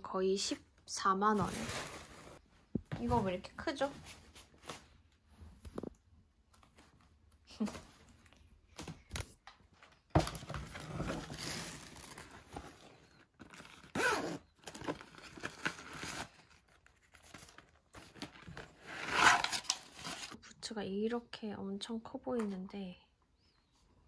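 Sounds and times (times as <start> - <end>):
paper and cardboard rustling: 1.3 - 2.4, 10.2 - 13.9, 14.6 - 20.4.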